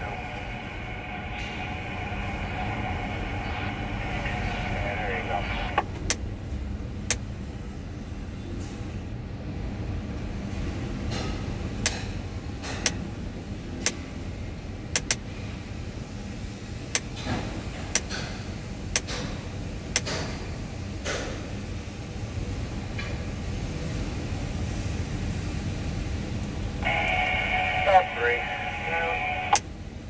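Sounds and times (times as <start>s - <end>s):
crane cab rumble: 26.8s - 29.6s.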